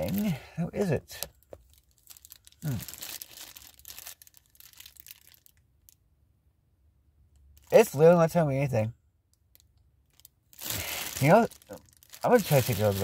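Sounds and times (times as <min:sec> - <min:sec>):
plastic bag crinkling: 0:00.0 - 0:00.4, 0:01.2 - 0:05.9, 0:10.1 - 0:13.0
man murmuring: 0:00.0 - 0:00.8, 0:02.6 - 0:02.9.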